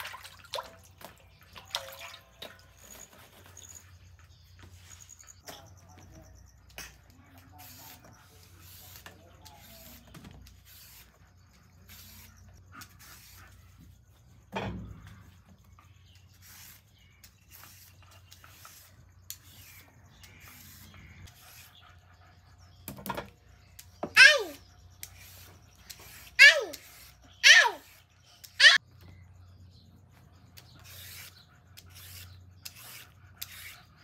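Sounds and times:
peeler scraping carrot: 23.7s - 28.8s, 30.6s - 34.0s.

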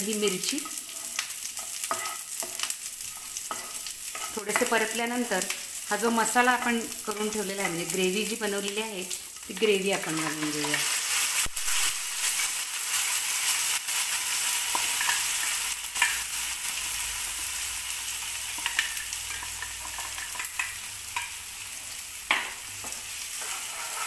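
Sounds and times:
paste sizzling in hot oil: 0.0s - 24.0s
metal jar and spoon scraping pan: 22.8s - 24.0s.

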